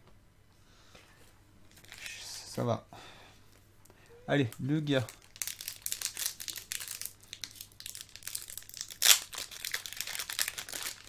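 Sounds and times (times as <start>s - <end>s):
foil wrapper crinkling: 5.0s - 11.0s.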